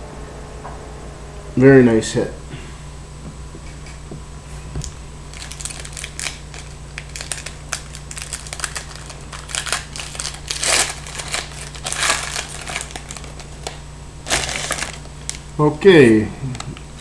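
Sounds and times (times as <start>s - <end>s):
wrapper crinkling: 5.3s - 15.5s
wrapper tearing and rustling: 5.3s - 15.5s.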